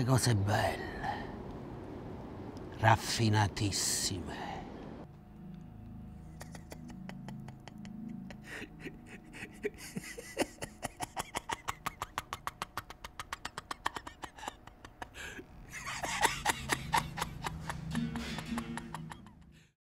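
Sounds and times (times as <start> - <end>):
man laughing breathily: 6.2 - 19.7.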